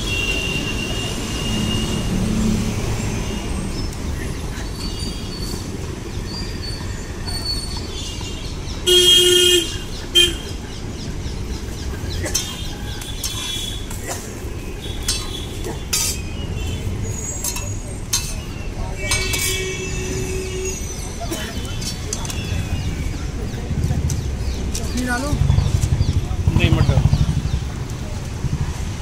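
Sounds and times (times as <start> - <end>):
street traffic: 0.0 - 29.0
vehicle horn honking: 8.9 - 10.5, 19.0 - 20.9.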